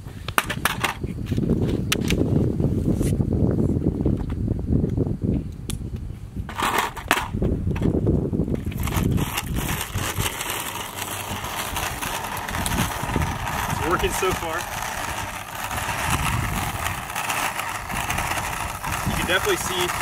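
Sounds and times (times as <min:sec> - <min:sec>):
wheels rolling on rough asphalt: 0:00.0 - 0:03.1, 0:06.1 - 0:20.0.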